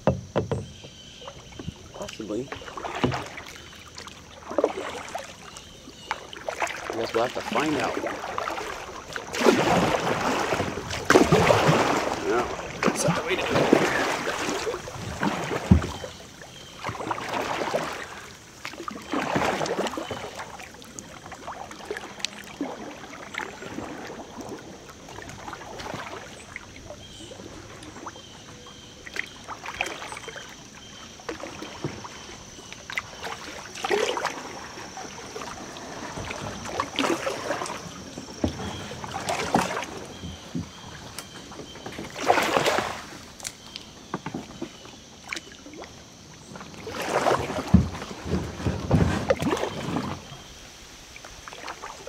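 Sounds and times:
light knocks: 0.0 - 1.0
paddle strokes swishing water: 0.0 - 52.0.

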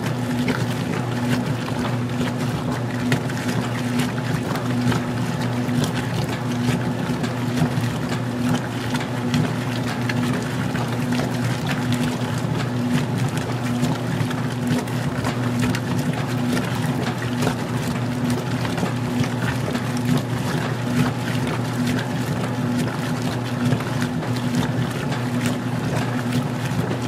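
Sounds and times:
small splashes: 0.0 - 27.0
washer motor hum: 0.0 - 27.0
water churning and sloshing: 0.0 - 27.0.

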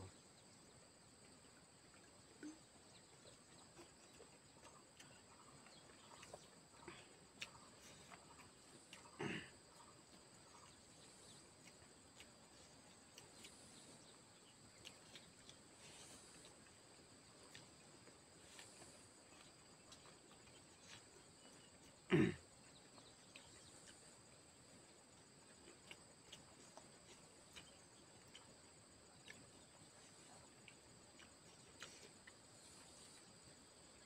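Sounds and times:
insects chirring: 0.0 - 34.0
person clearing throat: 9.1 - 9.6, 22.1 - 22.5.

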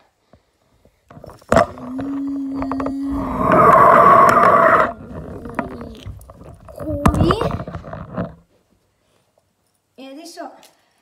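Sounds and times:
loud scraping rustle: 1.2 - 8.5.

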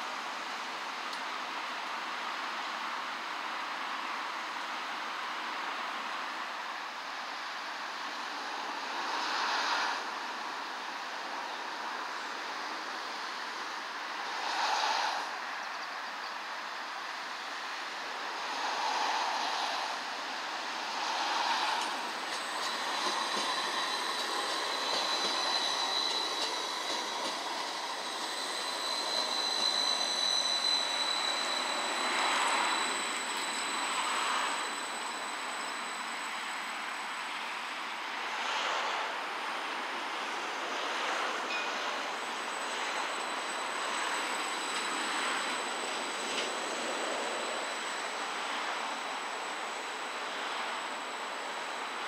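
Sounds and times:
electric tram running on rails: 0.0 - 52.0
wind noise hiss: 0.0 - 52.0
high-pitched whine: 18.1 - 38.6, 40.2 - 52.0.

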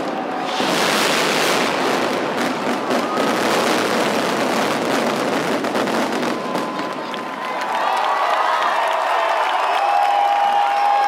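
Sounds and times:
firecrackers crackling: 0.0 - 7.9.

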